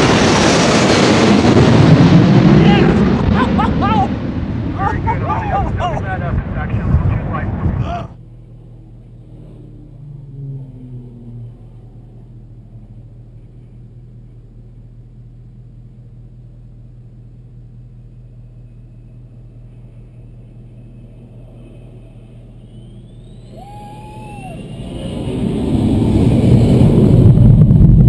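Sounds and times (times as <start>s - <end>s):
jet engine whine: 0.0s - 28.0s
vehicle engine idling: 8.1s - 24.6s.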